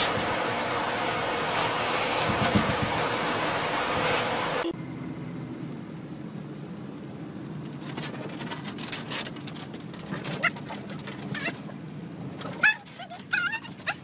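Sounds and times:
vehicle hum from inside cab: 0:00.0 - 0:14.0
dog whimpering: 0:11.3 - 0:11.7, 0:12.5 - 0:14.0.

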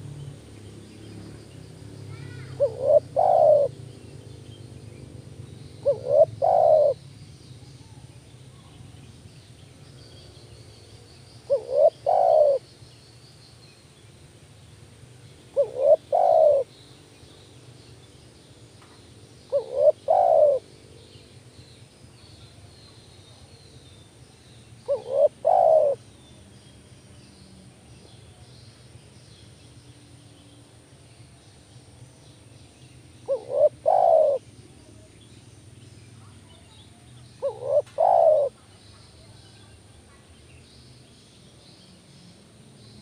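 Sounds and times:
faint high bird chirps: 0:01.0 - 0:13.9, 0:15.5 - 0:32.0, 0:32.6 - 0:43.0
dove cooing: 0:02.1 - 0:03.8, 0:05.7 - 0:07.0, 0:11.5 - 0:12.6, 0:15.5 - 0:16.7, 0:19.5 - 0:20.7, 0:24.9 - 0:26.0, 0:33.3 - 0:34.4, 0:37.4 - 0:38.7.

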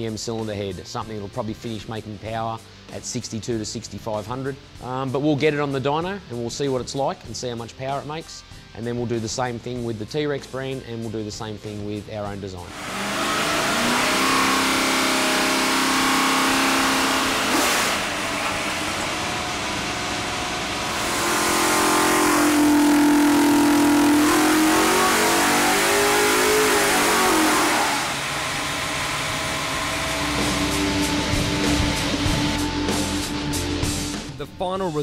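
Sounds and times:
engine running at high revs: 0:12.7 - 0:34.3.

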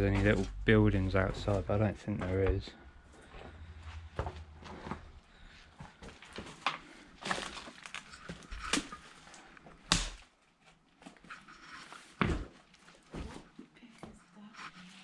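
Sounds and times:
footsteps crunching over rubble: 0:00.0 - 0:09.8.

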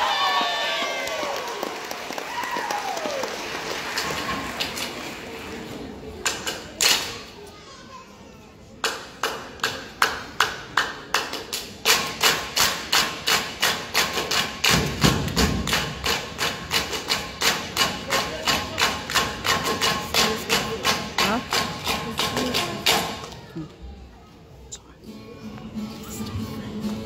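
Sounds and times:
group clapping in unison: 0:00.2 - 0:05.3, 0:09.2 - 0:16.9.

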